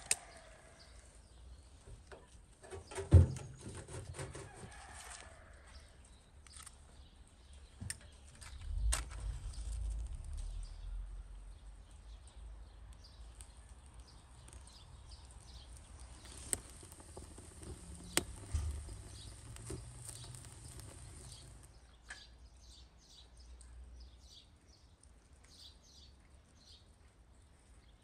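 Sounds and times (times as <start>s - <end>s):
kindling snapping in fire: 0.0s - 1.2s, 7.9s - 21.8s
small birds chirping: 0.0s - 4.2s, 4.8s - 28.0s
low rumble: 8.4s - 13.3s, 15.8s - 21.7s.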